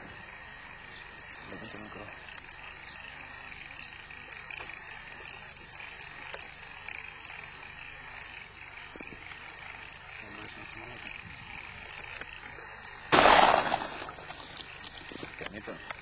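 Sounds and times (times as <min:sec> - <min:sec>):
chorus of calling wildlife: 0:00.0 - 0:16.0
faint ticks: 0:02.2 - 0:02.6, 0:03.5 - 0:07.4, 0:11.2 - 0:12.6.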